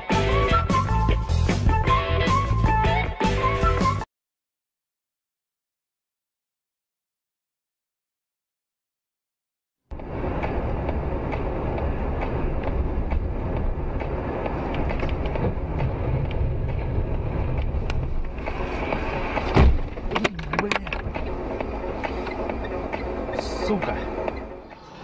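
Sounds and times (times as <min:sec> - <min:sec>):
car road and engine rumble: 0:09.9 - 0:25.0
loud thud: 0:19.4 - 0:20.1.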